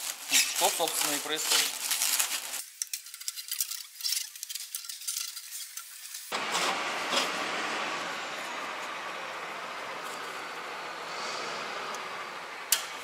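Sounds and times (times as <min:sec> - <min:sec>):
plastic rustling: 0:00.0 - 0:06.3
steady workshop noise: 0:00.0 - 0:13.0.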